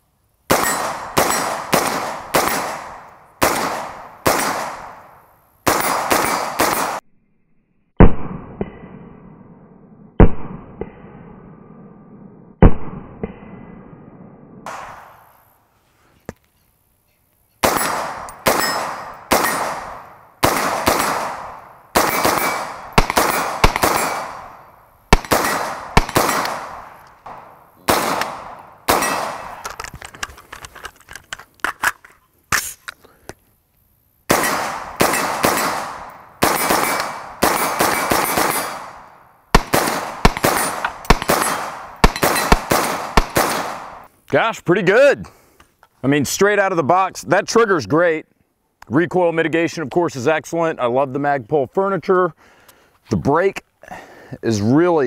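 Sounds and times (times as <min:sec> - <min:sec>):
rifle shots: 0:00.5 - 0:07.0, 0:12.6 - 0:15.3, 0:17.6 - 0:29.8, 0:34.3 - 0:44.1.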